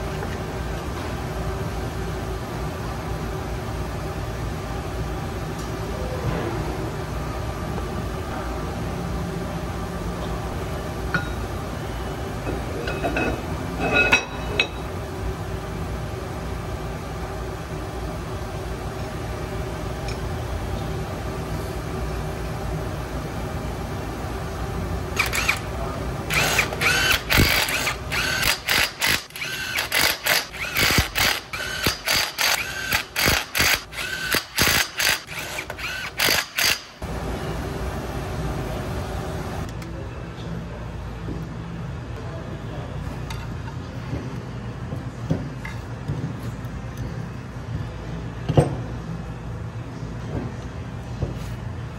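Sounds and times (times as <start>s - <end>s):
steady shop hum: 0.0s - 51.9s.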